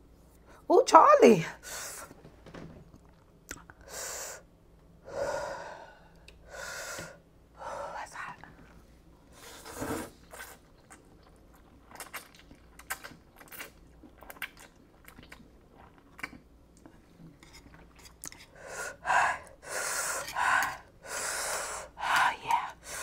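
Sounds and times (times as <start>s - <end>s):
person slurping noodles: 9.4s - 10.7s.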